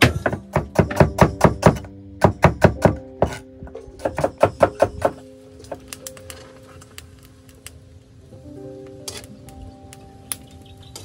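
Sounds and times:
knife chopping on wooden board: 0.0s - 3.4s, 4.0s - 5.2s.

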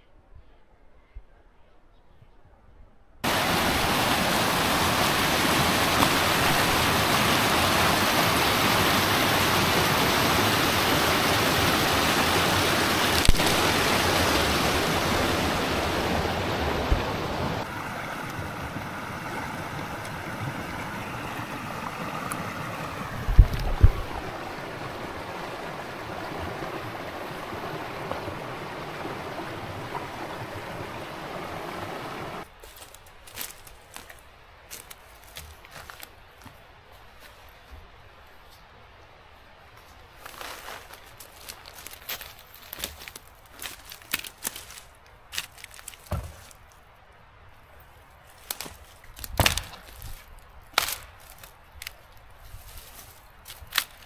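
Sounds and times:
stream water rushing: 3.2s - 32.5s
dull low thumps: 23.2s - 24.2s.

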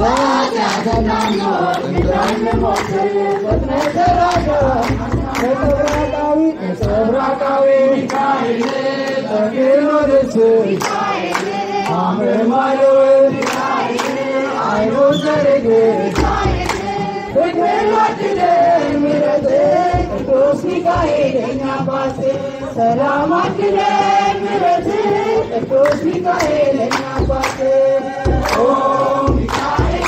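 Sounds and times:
hand claps: 0.0s - 7.3s, 8.0s - 9.3s, 10.7s - 12.2s, 13.3s - 14.5s, 16.0s - 17.0s, 25.8s - 30.0s
crowd singing a hymn: 0.0s - 30.0s.

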